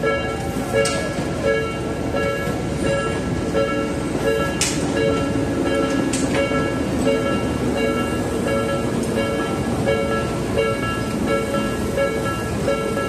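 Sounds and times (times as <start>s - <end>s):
level crossing alarm dinging: 0.0s - 13.0s.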